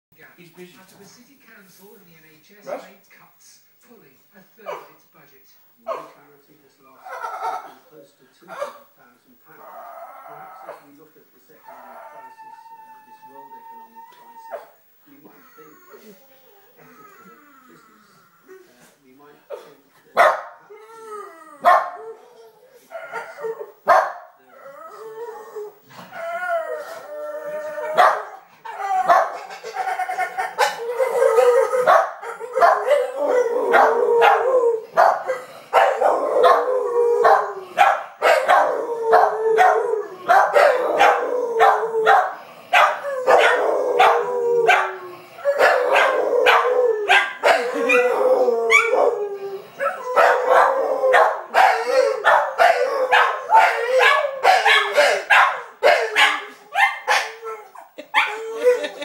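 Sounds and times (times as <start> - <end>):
hound howling and baying: 11.6 - 14.8, 20.7 - 59.0.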